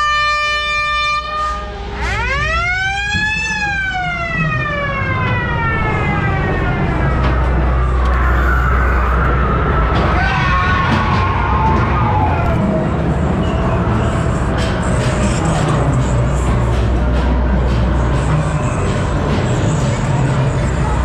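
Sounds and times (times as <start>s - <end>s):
low rumble: 3.1s - 21.0s.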